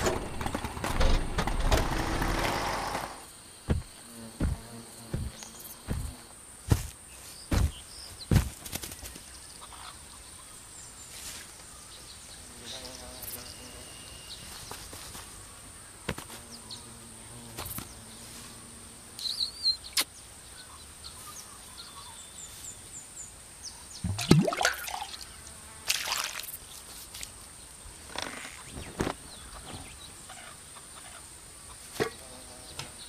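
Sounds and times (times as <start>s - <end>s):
faint outdoor hiss: 0.0s - 33.0s
small chirps and ticks: 19.1s - 23.2s.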